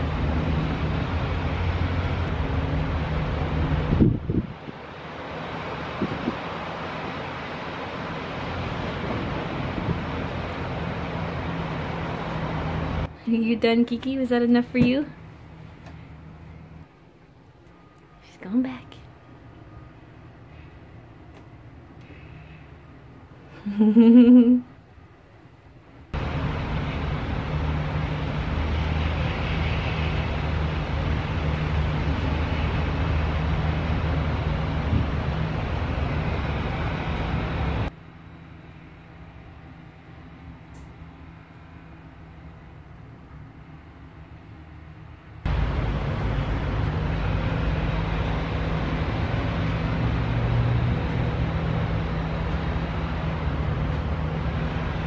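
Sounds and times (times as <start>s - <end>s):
low rumble: 0.0s - 13.2s
low even drone: 0.0s - 18.3s, 26.1s - 55.0s.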